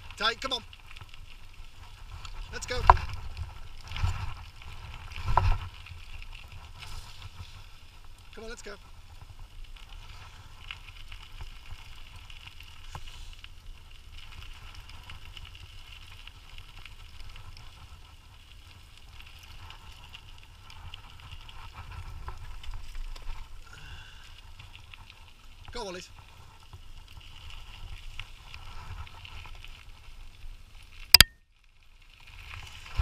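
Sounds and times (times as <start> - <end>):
tyres crackling on trail: 0.0 - 33.0
wind rumble on microphone: 0.8 - 13.0, 32.6 - 33.0.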